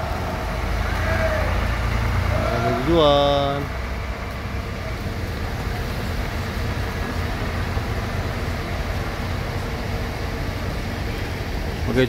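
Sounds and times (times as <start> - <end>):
bus engine rumble: 0.0 - 12.0.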